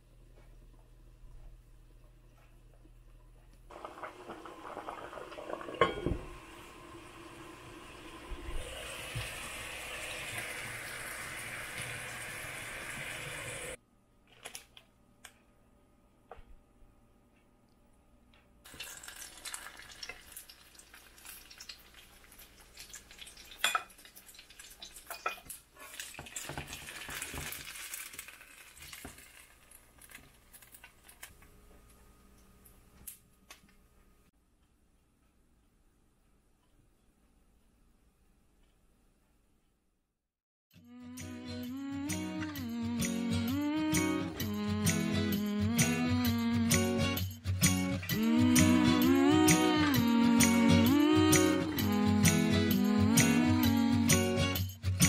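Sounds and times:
dumplings sizzling in a pan: 3.7s - 13.8s, 18.7s - 30.6s
cookware clinks: 5.8s - 6.2s.

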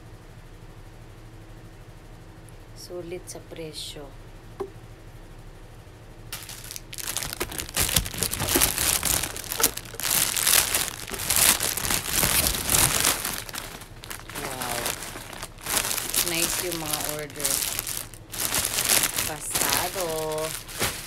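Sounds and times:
plastic bag crinkling: 6.3s - 21.0s.

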